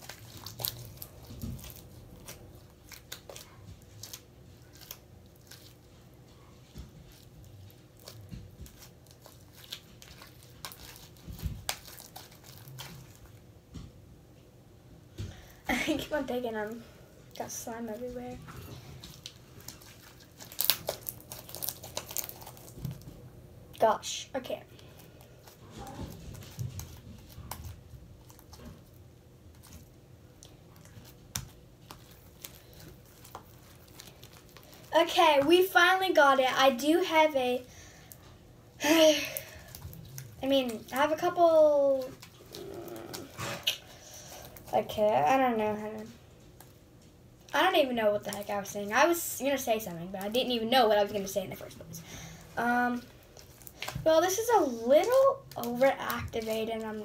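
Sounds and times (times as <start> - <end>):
slime squelching and crackling: 0.0 - 13.6, 15.7 - 57.0.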